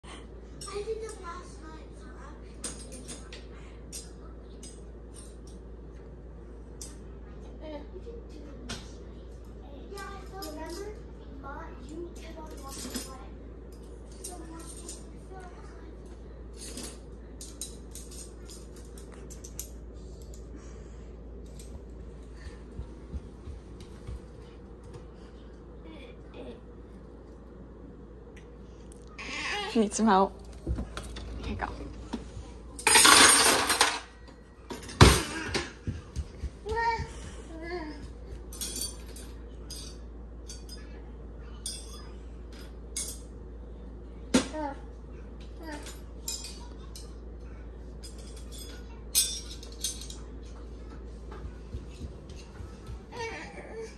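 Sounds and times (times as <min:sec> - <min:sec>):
silverware clinking: 0:16.5 - 0:20.4, 0:32.8 - 0:34.1, 0:38.5 - 0:43.3, 0:45.6 - 0:47.2, 0:48.0 - 0:50.6
cutlery clinking: 0:48.0 - 0:50.3.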